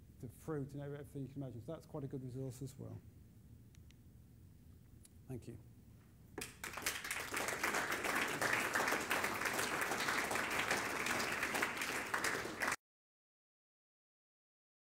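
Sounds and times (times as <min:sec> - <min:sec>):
audience applauding: 0:06.4 - 0:12.8.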